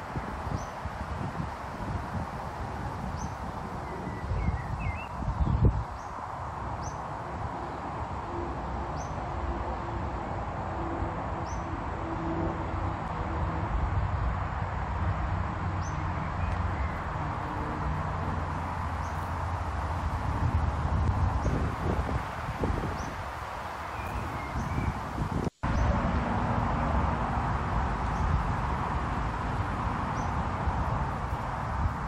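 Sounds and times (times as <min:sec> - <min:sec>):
wind rumbling on microphone: 0:00.0 - 0:32.0
bird chirping: 0:03.2 - 0:06.2, 0:23.9 - 0:25.0.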